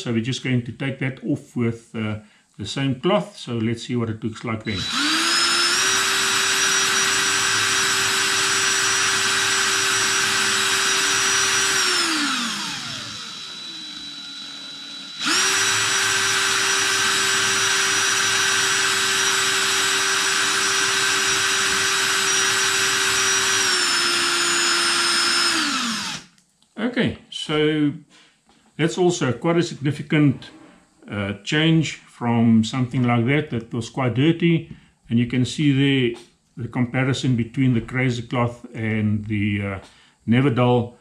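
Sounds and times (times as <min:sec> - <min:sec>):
cordless drill motor whine: 0:04.7 - 0:26.4.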